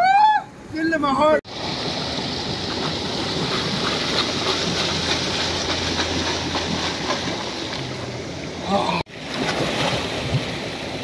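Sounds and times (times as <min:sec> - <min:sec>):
stream water rushing: 0:01.5 - 0:11.0.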